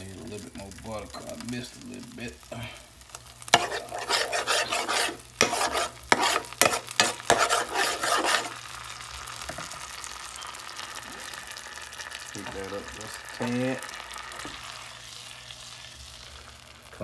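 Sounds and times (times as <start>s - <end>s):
butter sizzling in hot pan: 0.0s - 17.0s
butter scraping from container: 3.5s - 8.6s.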